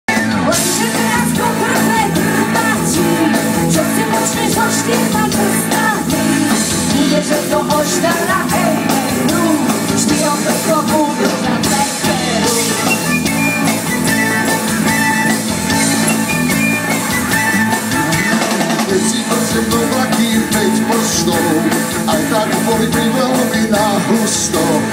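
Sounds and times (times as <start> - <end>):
drum kit: 0.1 - 24.9
electric guitar: 0.1 - 24.9
people singing: 0.2 - 13.2, 18.6 - 24.9.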